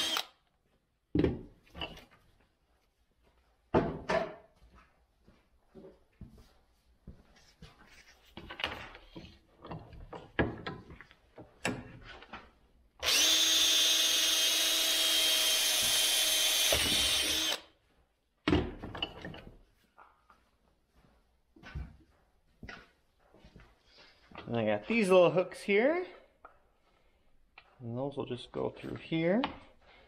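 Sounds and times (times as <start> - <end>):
cordless drill boring plastic: 0.0 - 0.3, 13.0 - 17.7.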